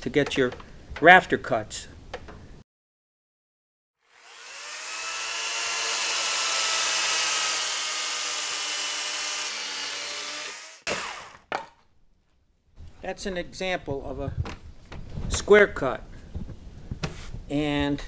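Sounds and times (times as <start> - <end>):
electric chainsaw cutting timber: 4.0 - 11.4.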